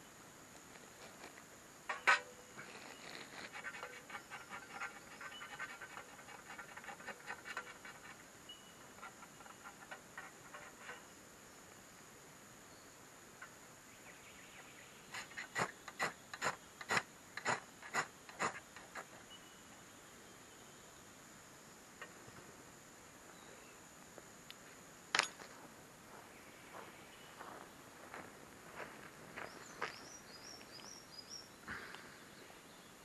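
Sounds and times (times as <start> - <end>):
crackly rustling: 0.5 - 11.1
ferro rod scraped with striker: 15.1 - 19.1.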